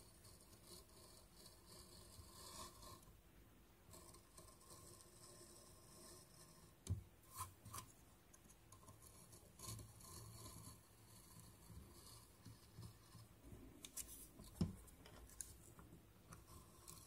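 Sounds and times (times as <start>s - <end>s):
carving blade scraping wood: 0.2s - 3.0s, 8.8s - 15.6s, 16.3s - 17.0s.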